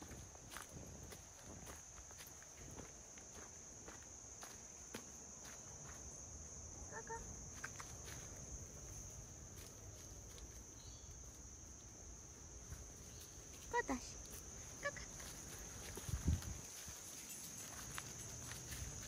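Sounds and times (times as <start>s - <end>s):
high-pitched insect chorus: 0.0s - 19.0s
footsteps on leaf litter: 12.8s - 19.0s.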